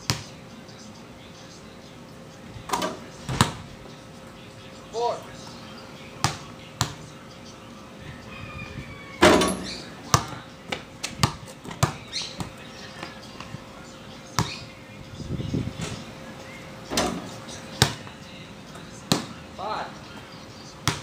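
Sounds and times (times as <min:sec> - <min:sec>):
basketball bouncing on concrete: 0:00.0 - 0:00.3, 0:03.3 - 0:03.6, 0:06.2 - 0:07.0, 0:09.2 - 0:13.5, 0:14.3 - 0:14.6, 0:17.0 - 0:18.2, 0:19.1 - 0:19.4, 0:20.8 - 0:21.0.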